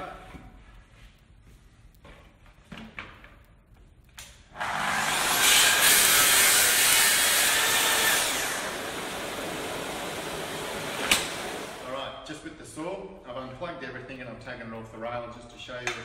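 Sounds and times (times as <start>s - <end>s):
circular saw cutting wood: 4.5s - 11.9s
dust extractor running: 4.6s - 11.9s.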